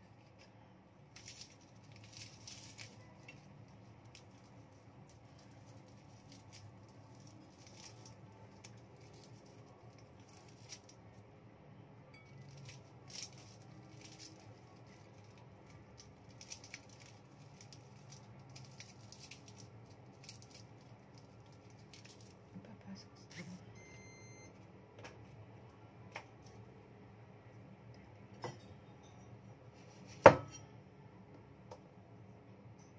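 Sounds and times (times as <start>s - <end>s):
low steady hum: 0.0s - 32.9s
hands peeling plant stalks: 0.2s - 11.1s, 12.4s - 22.4s.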